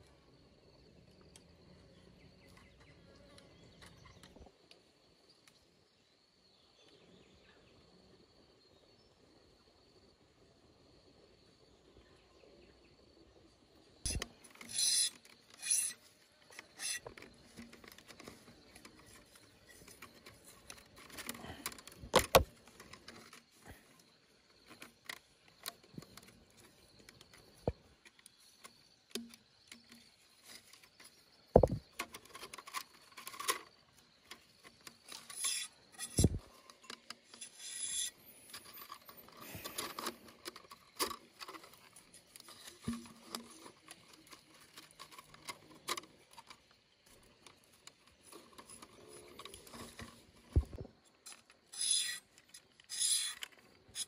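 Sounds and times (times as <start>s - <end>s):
bamboo strips rustling and scraping: 14.1s - 54.0s
sharp knocks: 31.5s - 31.8s.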